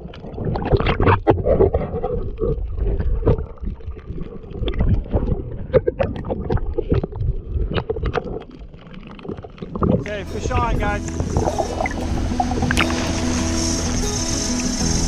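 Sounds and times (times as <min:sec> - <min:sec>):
muffled underwater rumbling: 0:00.0 - 0:15.0.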